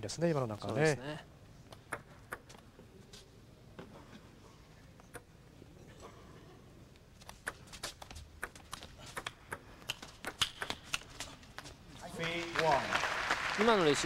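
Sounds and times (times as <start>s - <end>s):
table tennis ball clicking: 7.2s - 11.1s.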